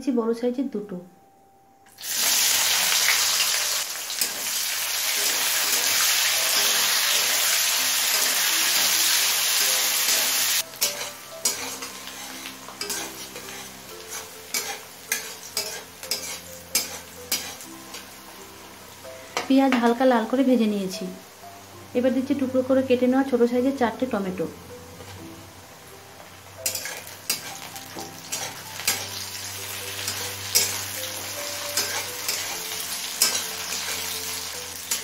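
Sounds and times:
onions sizzling in hot oil: 0:01.9 - 0:24.4, 0:25.0 - 0:35.0
spatula scraping metal pan: 0:09.6 - 0:18.1, 0:26.6 - 0:29.3, 0:29.9 - 0:35.0.

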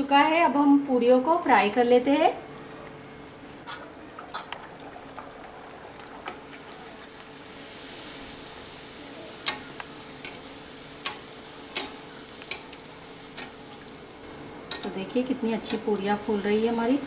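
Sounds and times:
food sizzling in hot oil: 0:03.4 - 0:17.0
metal spoon clicking against pan: 0:09.4 - 0:10.4, 0:11.0 - 0:12.8, 0:14.7 - 0:15.0.

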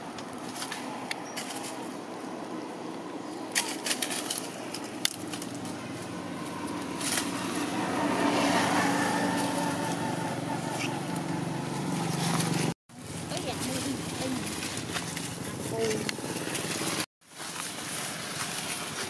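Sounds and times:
vehicle engine humming: 0:00.0 - 0:17.1.

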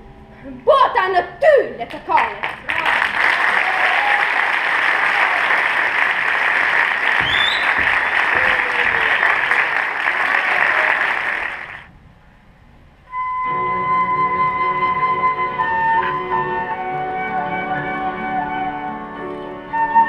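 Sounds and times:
audience applauding: 0:01.9 - 0:11.9.

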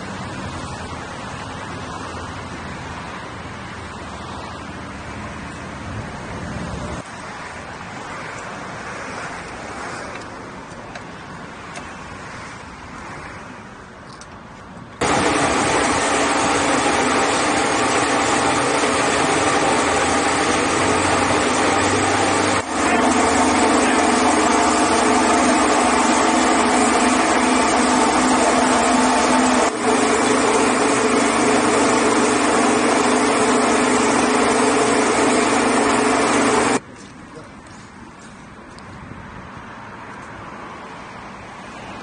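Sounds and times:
piston air compressor running: 0:15.0 - 0:36.8.

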